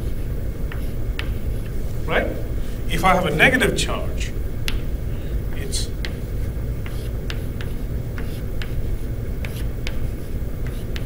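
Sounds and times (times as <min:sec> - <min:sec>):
low room rumble: 0:00.0 - 0:11.0
chalk tapping on blackboard: 0:00.6 - 0:01.8, 0:04.6 - 0:04.9, 0:06.0 - 0:11.0.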